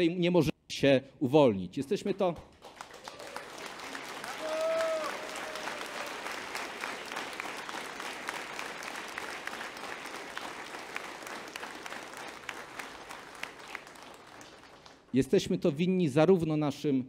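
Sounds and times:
audience applauding: 0:02.5 - 0:15.2.

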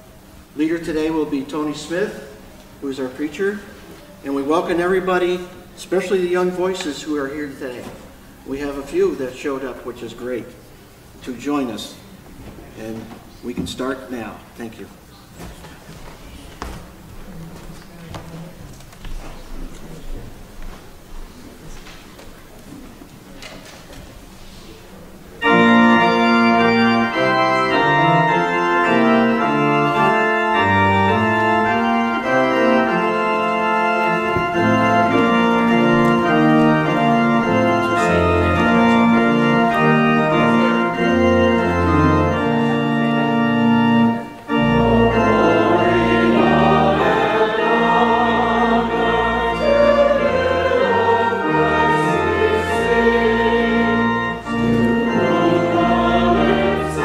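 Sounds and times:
pipe organ chords: 0:25.4 - 0:57.0
small choir singing: 0:44.5 - 0:57.0.

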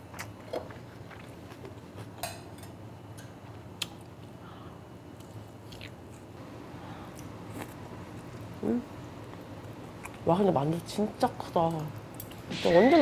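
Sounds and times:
person chewing food: 0:05.2 - 0:06.3, 0:07.1 - 0:08.6.

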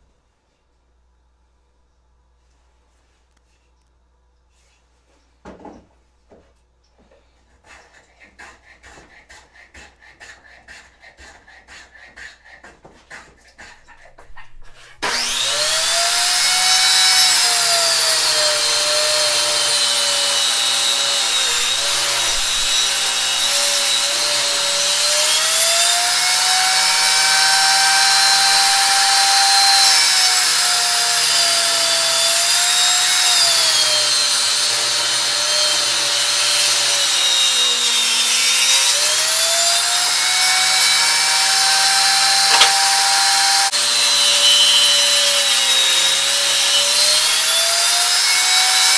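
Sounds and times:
table saw cutting wood: 0:15.0 - 0:48.9
sharp knock: 0:42.5 - 0:43.0.

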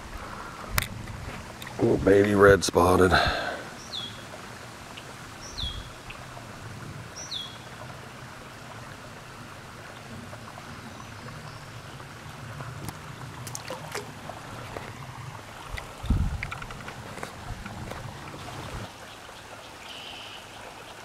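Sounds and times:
creek water running: 0:00.0 - 0:21.0
bird chirp: 0:03.8 - 0:04.2, 0:05.4 - 0:06.2, 0:07.2 - 0:07.7.

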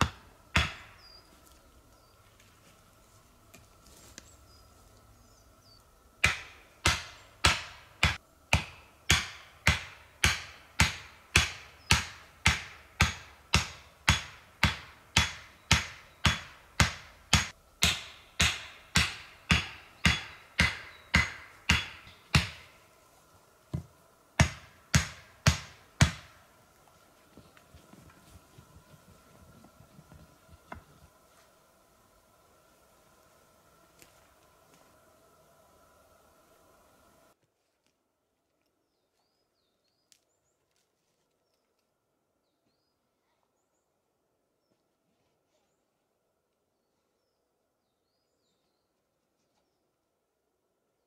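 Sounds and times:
axe hammering wooden stake: 0:00.0 - 0:01.1, 0:06.2 - 0:22.8, 0:23.7 - 0:26.4.

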